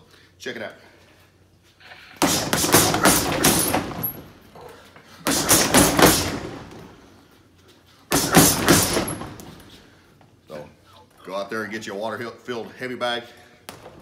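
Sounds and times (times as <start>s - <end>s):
punches thudding on heavy bag: 2.2s - 4.3s, 5.2s - 6.9s, 8.1s - 9.6s.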